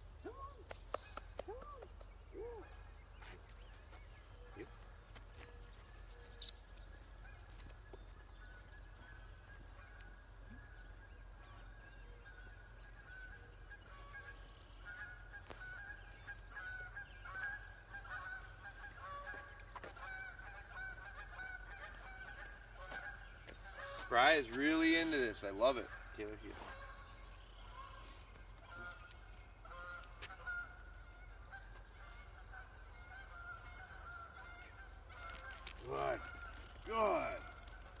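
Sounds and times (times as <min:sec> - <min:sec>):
geese honking: 0:12.8 - 0:38.0.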